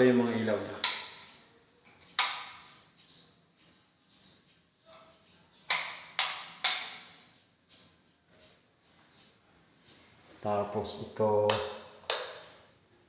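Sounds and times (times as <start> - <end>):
sharp clicks in echoing room: 0.7 - 2.9, 5.6 - 7.9, 11.3 - 12.7.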